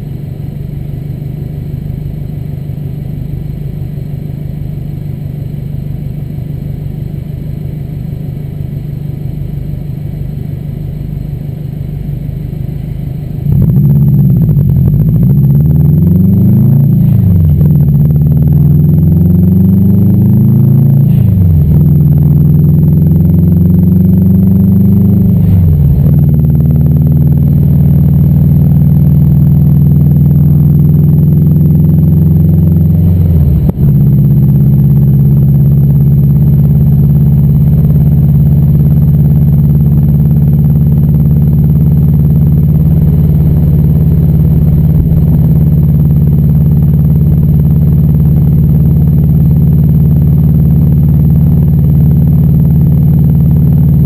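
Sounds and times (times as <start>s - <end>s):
car engine accelerating through gears: 13.4s - 54.0s.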